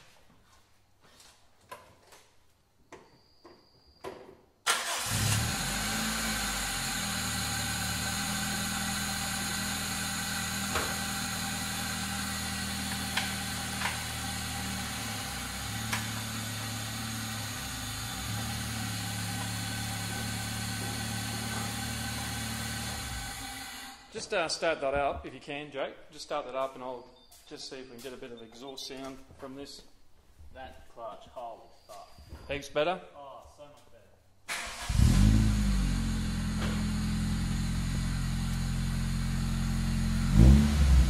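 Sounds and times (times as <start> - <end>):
car engine starting and idling: 4.6 - 24.1, 34.5 - 41.0.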